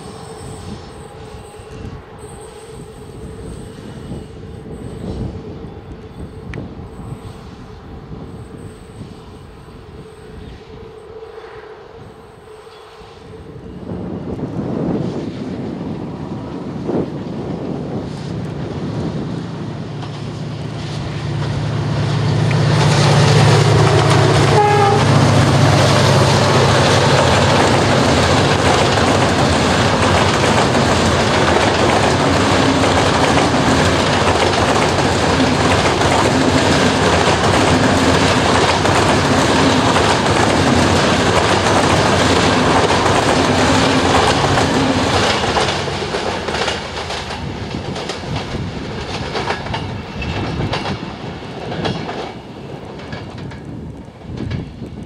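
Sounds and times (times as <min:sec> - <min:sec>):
electric locomotive hum: 0:00.0 - 0:55.0
train wheels clattering over rails: 0:18.5 - 0:55.0.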